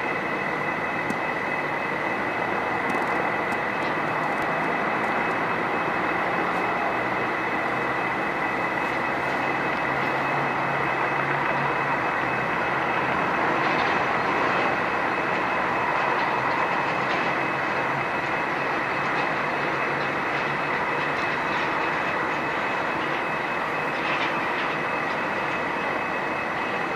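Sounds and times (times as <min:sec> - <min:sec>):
jet engines roaring and whining: 0:00.0 - 0:26.9.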